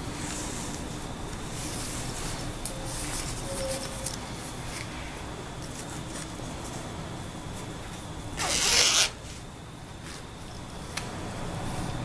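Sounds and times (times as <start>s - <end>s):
zipper pulled shut: 8.4s - 9.2s.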